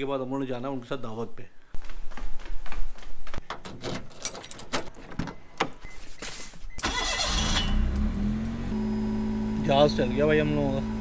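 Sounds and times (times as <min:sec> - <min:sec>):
footsteps: 0:01.7 - 0:03.8
keys jingling: 0:03.5 - 0:05.1
car engine starting and running: 0:06.7 - 0:11.0.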